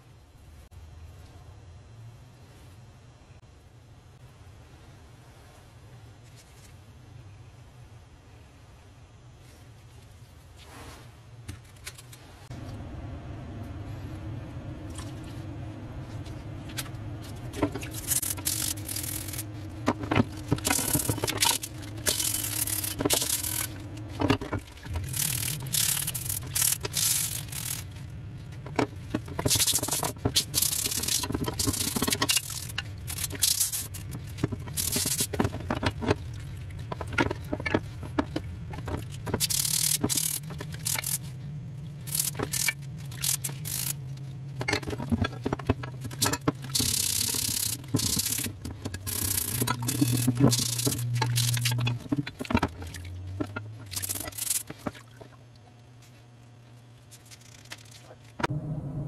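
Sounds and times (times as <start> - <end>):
low steady hum: 0.0 - 59.0
scrub brush scraping metal: 17.5 - 27.9.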